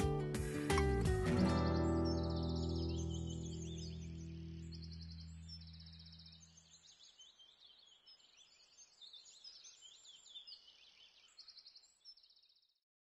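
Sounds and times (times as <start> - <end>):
background music: 0.0 - 4.4
birdsong chirps and trills: 0.6 - 12.8.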